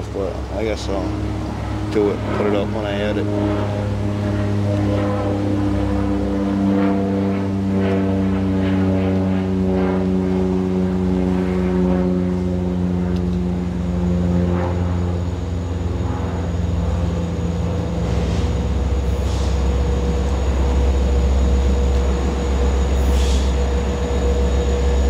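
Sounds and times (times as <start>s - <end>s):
diesel locomotive engine droning: 0.0s - 25.0s
short air hisses: 18.0s - 19.7s, 23.0s - 23.6s.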